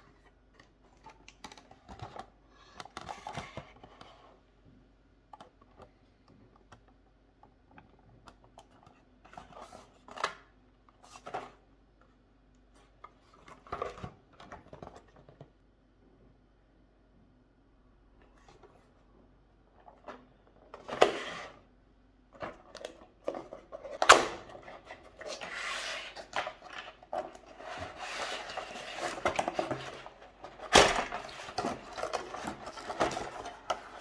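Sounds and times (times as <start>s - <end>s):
cardboard rustling and scraping: 22.4s - 34.0s.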